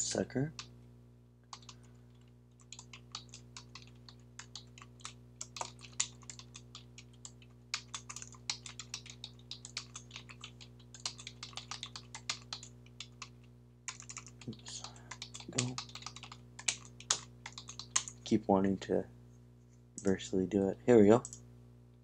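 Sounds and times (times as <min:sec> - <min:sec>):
faint steady hum: 0:00.0 - 0:22.0
keyboard typing: 0:01.5 - 0:18.3.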